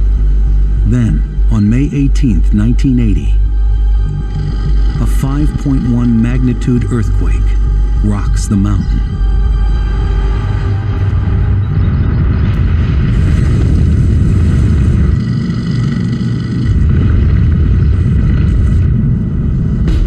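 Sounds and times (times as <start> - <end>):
deep earthquake rumble: 0.0 - 20.0.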